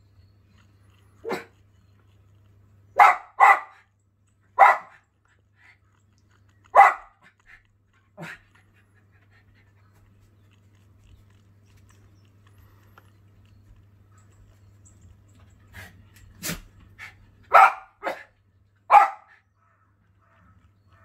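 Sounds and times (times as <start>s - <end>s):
dog barking sharply: 3.0s - 3.8s, 4.6s - 5.0s, 6.7s - 7.2s, 17.5s - 18.3s, 18.9s - 19.4s.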